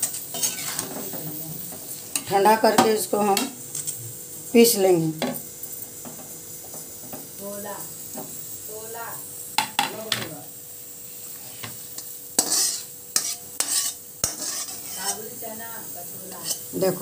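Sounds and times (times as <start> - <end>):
metal spatula scraping a pan: 0.0 - 1.2, 11.4 - 17.0
oil sizzling faintly: 0.0 - 17.0.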